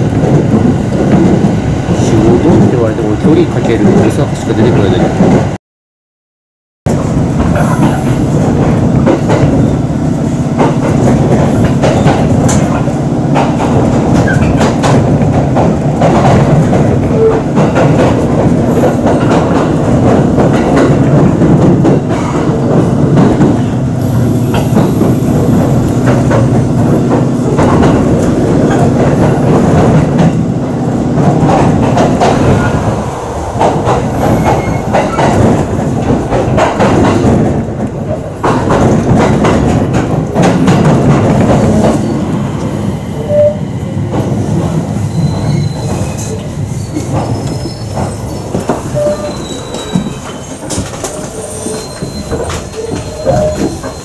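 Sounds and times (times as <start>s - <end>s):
train running gear rumble: 0.0s - 5.6s, 6.9s - 54.0s
wheels clicking over rail joints: 45.9s - 54.0s.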